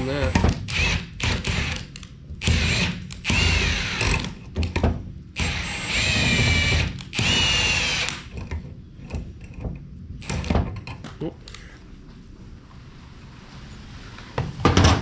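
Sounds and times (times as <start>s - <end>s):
power tool whining: 5.4s - 8.3s.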